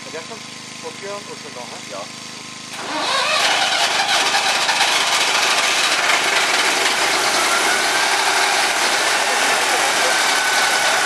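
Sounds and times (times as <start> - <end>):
diesel engine revving: 2.7 - 11.0.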